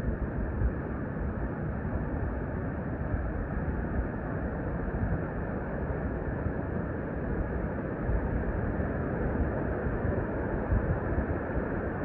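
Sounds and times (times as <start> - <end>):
wind: 0.0 - 12.0.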